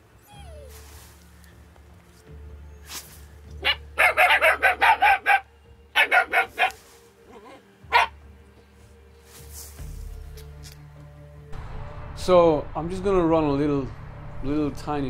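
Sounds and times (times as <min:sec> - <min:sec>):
puppies barking: 0:03.6 - 0:08.2.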